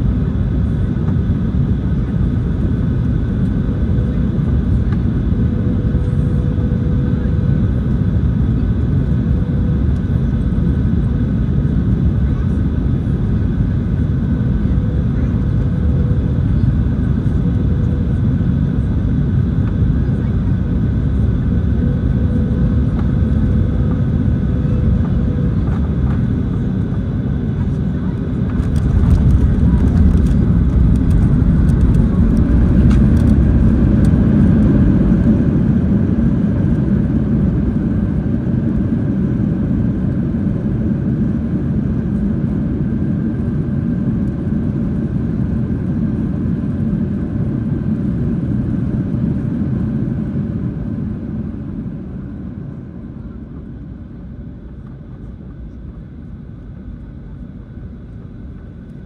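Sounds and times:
jet engines rumbling: 0.0 - 56.0
wheels rolling on runway: 28.5 - 34.2.

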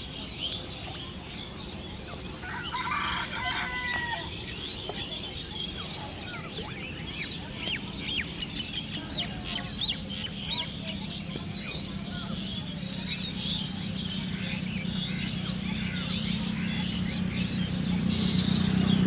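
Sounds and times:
small birds chirping: 0.0 - 19.0
rooster crowing: 2.4 - 4.3.

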